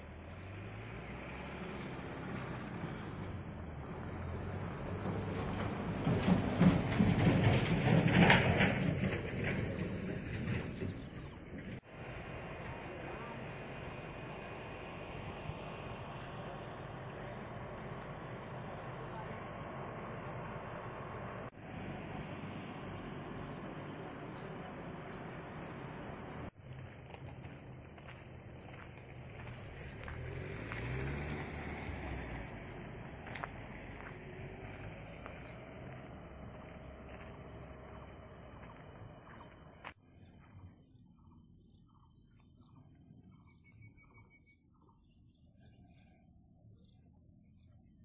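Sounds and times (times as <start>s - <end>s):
insect chirps: 21.6s - 30.6s, 32.8s - 45.4s.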